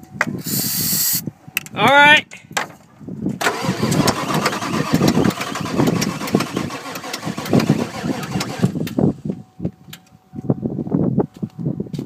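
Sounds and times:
diesel engine cranking: 3.4s - 9.3s.

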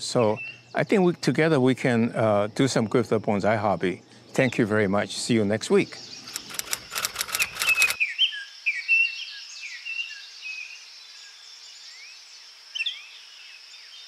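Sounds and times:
birds chirping: 0.0s - 8.0s
sharp clicks: 6.2s - 8.0s.

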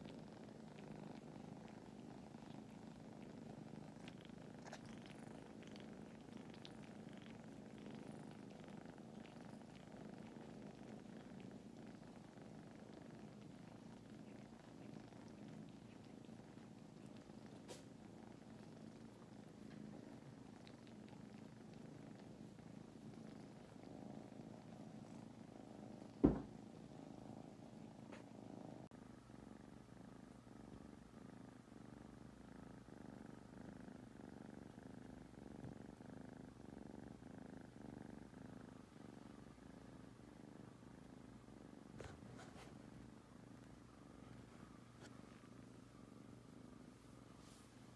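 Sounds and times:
kittens purring: 0.0s - 47.9s
sharp knock: 26.2s - 26.5s.

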